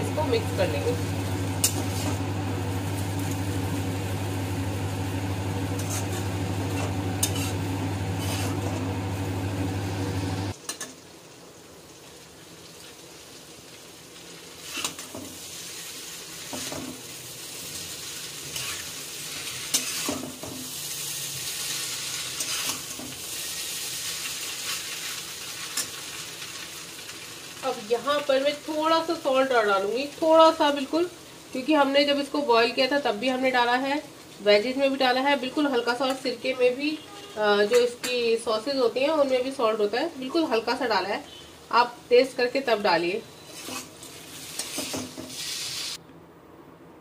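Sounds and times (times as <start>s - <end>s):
loud low hum: 0.0s - 10.5s
light sizzle: 0.0s - 46.0s
metal utensils scraping a pan: 5.8s - 6.2s, 6.8s - 7.6s, 8.2s - 8.6s, 18.1s - 20.3s, 21.6s - 23.6s, 43.4s - 45.7s.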